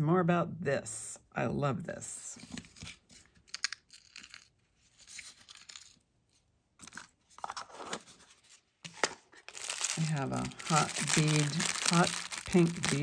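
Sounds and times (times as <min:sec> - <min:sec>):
hands rustling cardboard box: 0:07.5 - 0:13.0.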